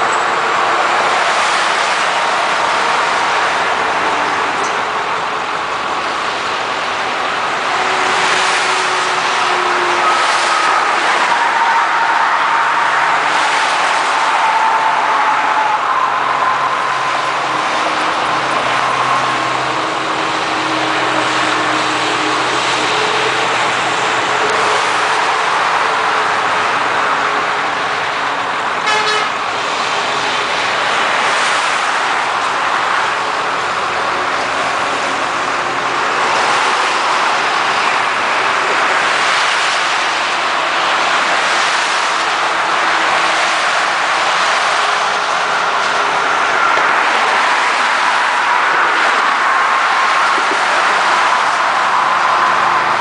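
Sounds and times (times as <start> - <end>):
highway traffic rushing: 0.0 - 53.0
vehicle horns: 7.6 - 26.9, 28.8 - 29.6.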